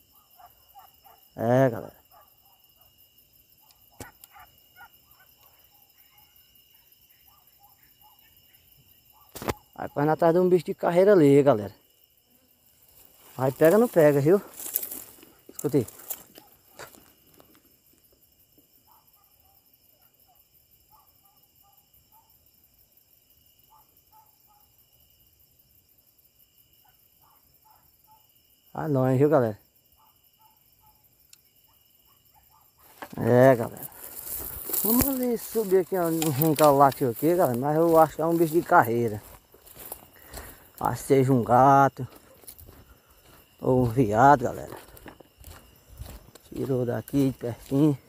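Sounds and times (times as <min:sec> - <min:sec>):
distant dogs barking: 0:00.0 - 0:10.2, 0:16.2 - 0:17.1, 0:18.8 - 0:22.4, 0:23.6 - 0:24.8, 0:26.8 - 0:28.4, 0:29.9 - 0:48.0
high insect drone: 0:00.0 - 0:48.0
distant dog barking: 0:00.1 - 0:01.3, 0:02.0 - 0:03.0, 0:03.6 - 0:10.1, 0:18.8 - 0:22.4, 0:23.7 - 0:24.8, 0:26.8 - 0:28.3, 0:30.0 - 0:32.9.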